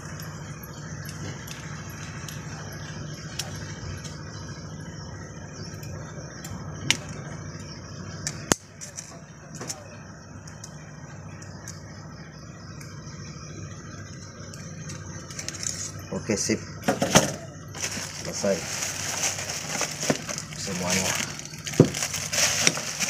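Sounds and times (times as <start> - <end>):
steady low hum: 0.0 - 23.0
metallic clicks and clinks: 5.7 - 12.0, 14.5 - 16.0.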